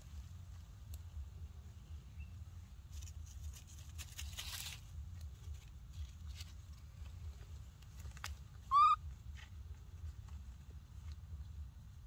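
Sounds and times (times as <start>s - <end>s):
steady low rumble: 0.0s - 12.0s
dry leaves crackling: 2.8s - 8.9s
baby monkey high call: 8.6s - 9.1s.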